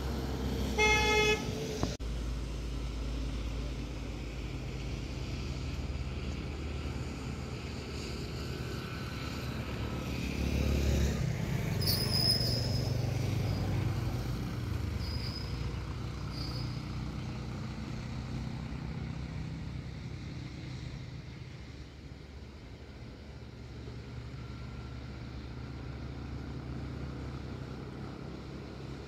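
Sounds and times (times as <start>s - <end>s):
vehicle engine running: 0.0s - 29.0s
brief high squeaks: 11.7s - 13.6s, 15.0s - 16.9s.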